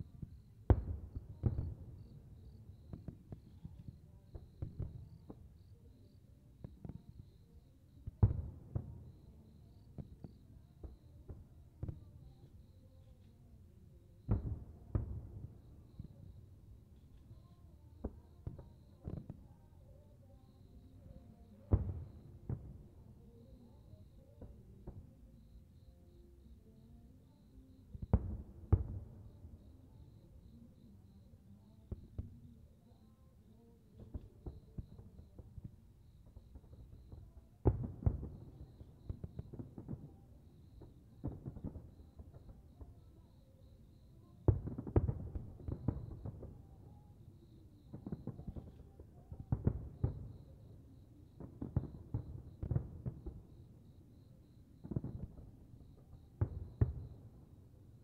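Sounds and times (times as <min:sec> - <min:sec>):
fireworks booming: 0:00.4 - 0:03.5.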